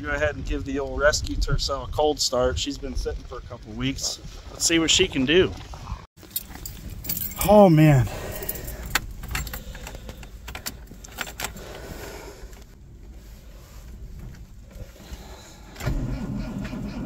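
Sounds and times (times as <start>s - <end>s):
keys jangling in ignition: 6.2s - 11.7s.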